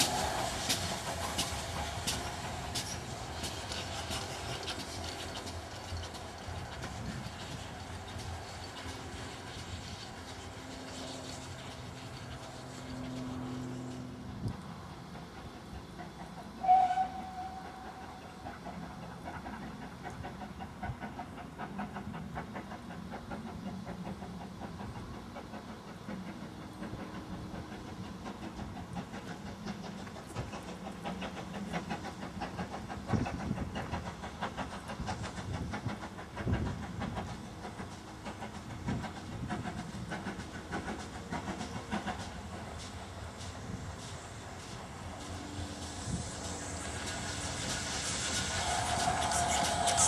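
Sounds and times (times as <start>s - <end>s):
steam locomotive exhaust beat: 0.0s - 50.0s
steam locomotive whistle: 16.6s - 18.2s, 48.3s - 50.0s.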